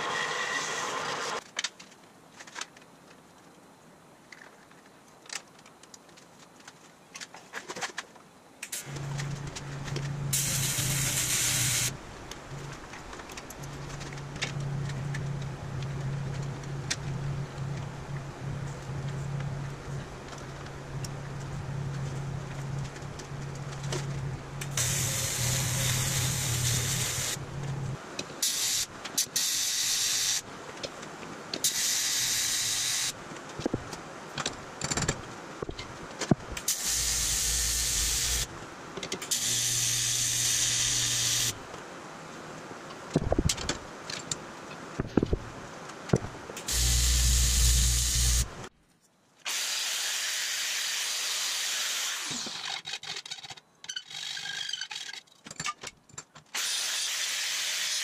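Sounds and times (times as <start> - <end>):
welding arc hissing and buzzing: 8.7 - 12.0, 24.6 - 30.4, 31.7 - 33.2, 36.6 - 38.5, 39.3 - 41.6, 46.7 - 48.7.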